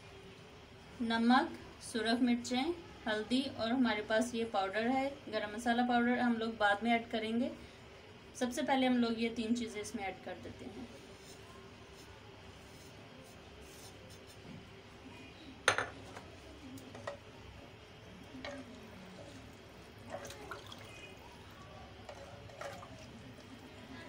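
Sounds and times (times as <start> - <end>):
spoon stirring in liquid: 16.0 - 23.7
liquid sloshing: 18.2 - 23.8.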